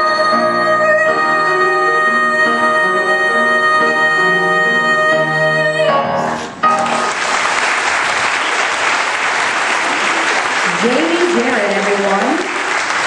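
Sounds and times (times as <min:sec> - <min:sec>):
musical accompaniment: 0:00.0 - 0:08.7
audience applauding loudly: 0:06.8 - 0:13.0.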